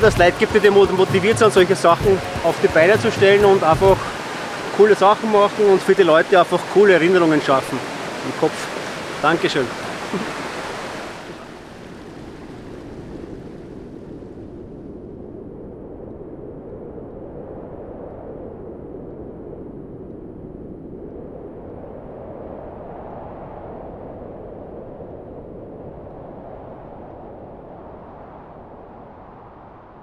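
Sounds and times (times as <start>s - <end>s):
steady low rushing noise: 0.0s - 11.0s.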